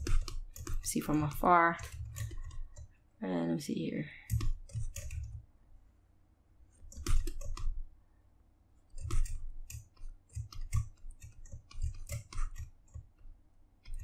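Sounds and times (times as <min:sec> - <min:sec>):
mouse and keyboard clicking: 0:00.0 - 0:02.9, 0:04.3 - 0:05.4, 0:06.9 - 0:07.8, 0:08.9 - 0:13.1.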